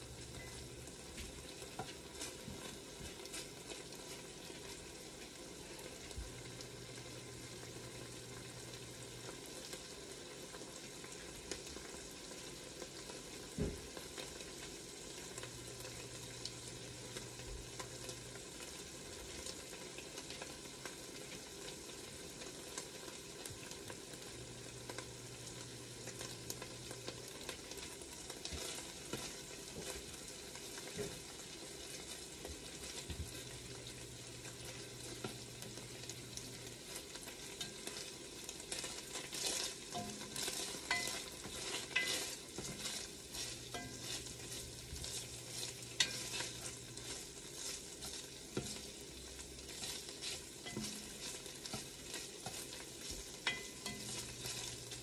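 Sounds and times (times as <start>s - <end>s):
spatula stirring: 0.0s - 8.9s, 24.8s - 55.0s
bacon sizzling in a pot: 0.0s - 55.0s.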